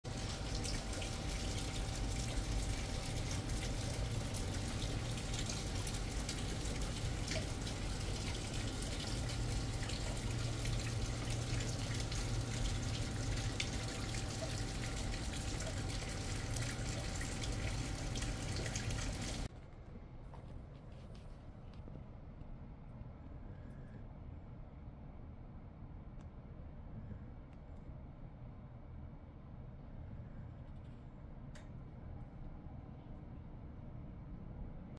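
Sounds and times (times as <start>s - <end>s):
steady rain falling: 0.1s - 19.5s.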